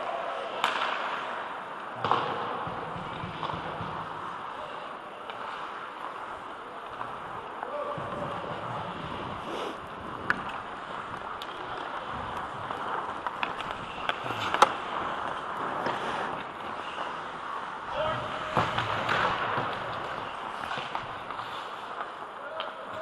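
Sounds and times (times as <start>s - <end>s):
hockey sticks and puck clacking: 0.0s - 23.0s
skate blades scraping ice: 0.6s - 23.0s.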